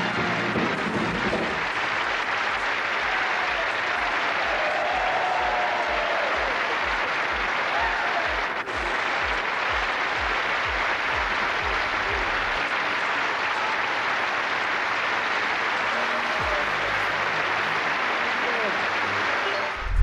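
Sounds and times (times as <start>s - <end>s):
audience applauding: 0.0s - 20.0s
low thumping beat: 8.7s - 12.6s.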